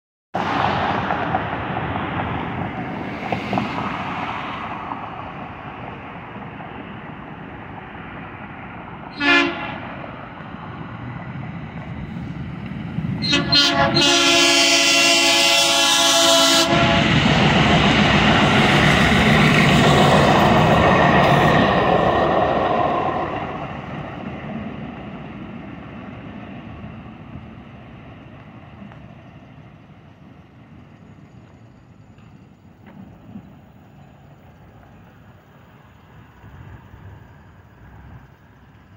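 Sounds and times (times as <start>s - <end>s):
passing car traffic: 0.4s - 38.9s
train rushing past: 0.4s - 38.9s
train horn: 9.1s - 10.0s, 13.2s - 17.4s.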